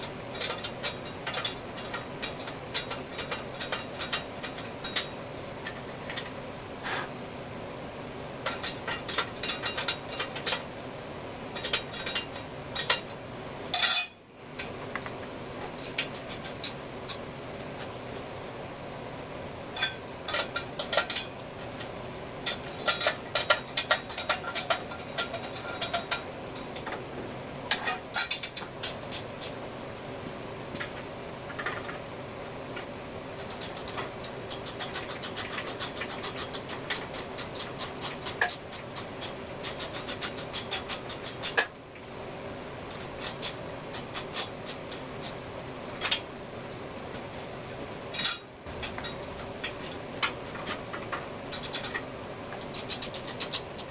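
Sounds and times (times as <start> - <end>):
ratchet clicks: 33.4 - 41.7, 51.0 - 52.0, 52.6 - 53.9.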